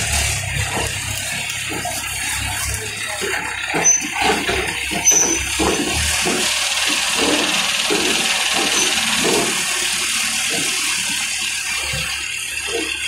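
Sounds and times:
crane diesel engine running: 0:00.0 - 0:13.0
short knocks and clatters: 0:03.2 - 0:09.8.

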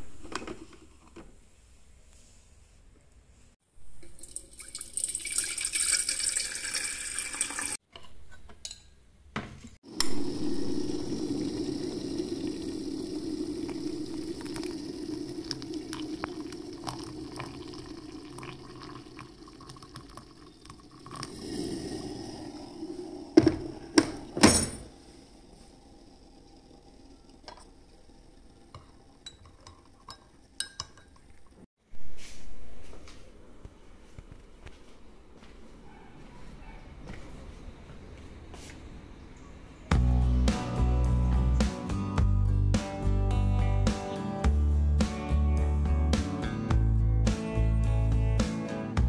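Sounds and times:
water pouring into mug: 0:04.0 - 0:07.8, 0:09.9 - 0:31.6
kettle hissing: 0:09.9 - 0:31.6
crockery clinking: 0:24.2 - 0:24.9, 0:29.2 - 0:31.4.

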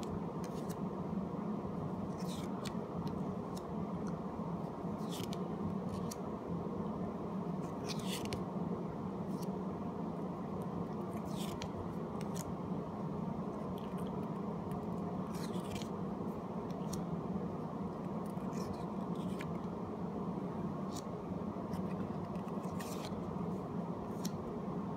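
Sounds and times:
steady low hum: 0:00.0 - 0:24.9
cards sliding papery swish: 0:00.4 - 0:00.8, 0:02.1 - 0:03.7, 0:05.0 - 0:06.2, 0:07.6 - 0:08.4, 0:09.3 - 0:09.6, 0:11.0 - 0:12.5, 0:15.2 - 0:16.0, 0:16.7 - 0:17.1, 0:18.2 - 0:19.6, 0:21.7 - 0:23.3, 0:24.0 - 0:24.4.

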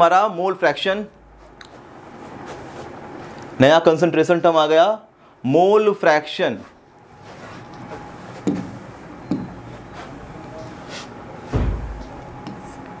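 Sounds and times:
faint room hum: 0:00.0 - 0:13.0
soft knocks: 0:11.5 - 0:12.2.

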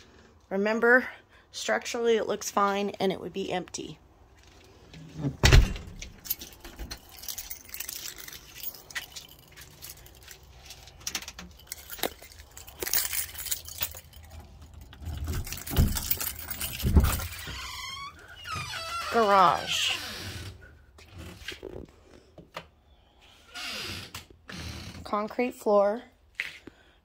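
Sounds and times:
door thumps: 0:05.2 - 0:06.0
keys jangling: 0:05.8 - 0:18.3.

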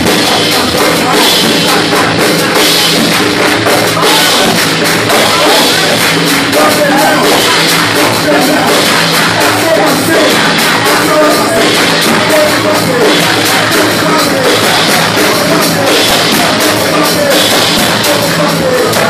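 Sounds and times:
congregation clapping: 0:00.0 - 0:19.0
gospel music through loudspeakers: 0:00.0 - 0:19.0
people singing into microphones: 0:00.0 - 0:19.0.

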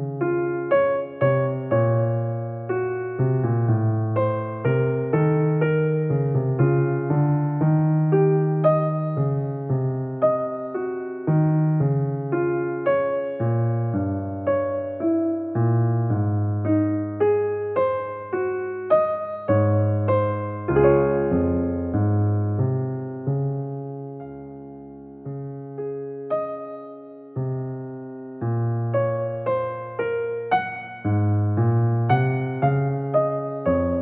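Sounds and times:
gentle piano melody: 0:00.0 - 0:34.0.

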